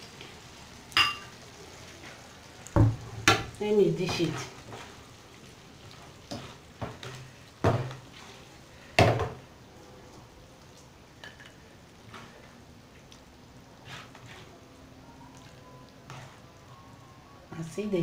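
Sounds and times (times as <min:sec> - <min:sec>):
clinks on glass bowl: 0:01.0 - 0:01.3
spoon scraping frying pan: 0:05.9 - 0:08.5, 0:13.8 - 0:14.5, 0:16.0 - 0:16.5.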